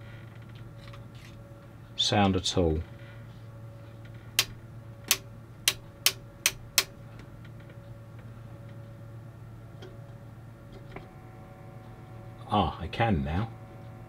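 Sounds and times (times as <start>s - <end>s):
steady low hum: 0.0s - 14.0s
radio switches clicking: 4.4s - 7.0s.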